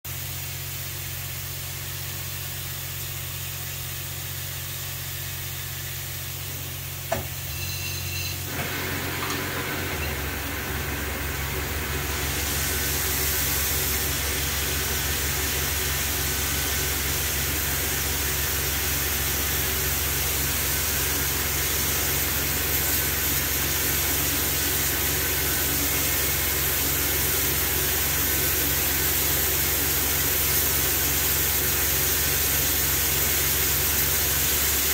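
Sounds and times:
lathe spindle running up: 7.5 - 31.3
mist coolant nozzle hissing: 8.5 - 34.9.

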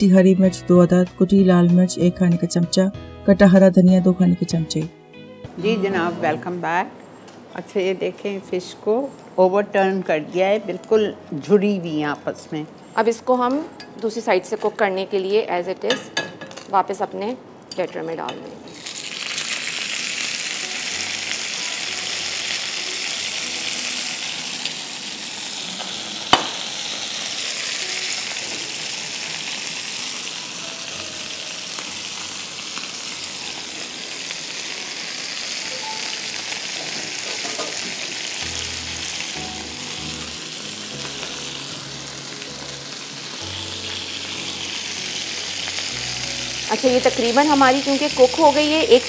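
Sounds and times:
oil sizzling in skillet: 18.7 - 49.0.

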